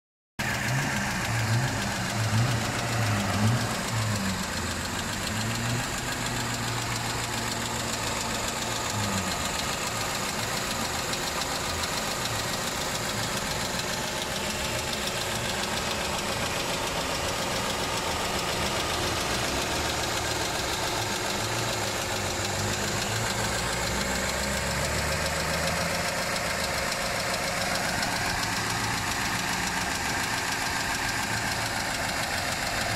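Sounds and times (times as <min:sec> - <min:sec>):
car engine idling: 0:00.4 - 0:32.9.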